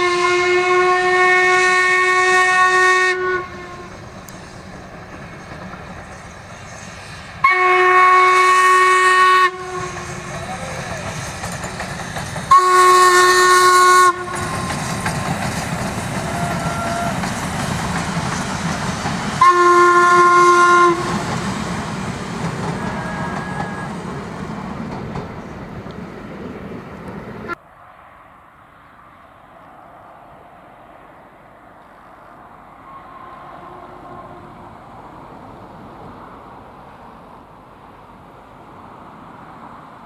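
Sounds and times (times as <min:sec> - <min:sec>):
steam locomotive whistle: 0:00.0 - 0:04.0, 0:07.4 - 0:11.0, 0:12.5 - 0:14.9, 0:16.1 - 0:17.4, 0:19.3 - 0:21.7, 0:22.6 - 0:24.0
train rumbling and clattering past: 0:00.0 - 0:27.6, 0:29.5 - 0:40.0.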